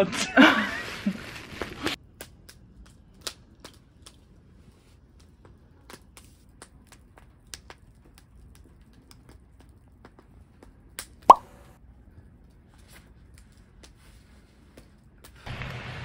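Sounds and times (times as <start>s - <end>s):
wood fire crackling: 0.4s - 11.2s.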